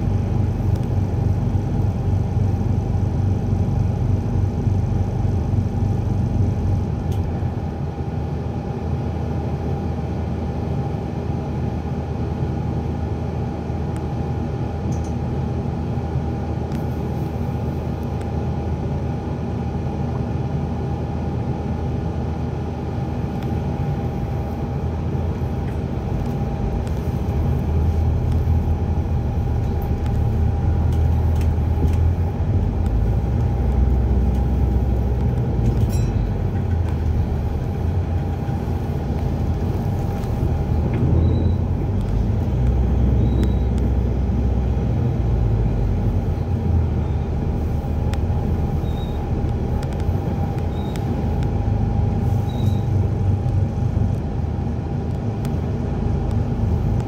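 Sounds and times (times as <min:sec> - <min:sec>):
bus engine rumble: 0:00.0 - 0:57.0
thin whine: 0:25.4 - 0:44.6.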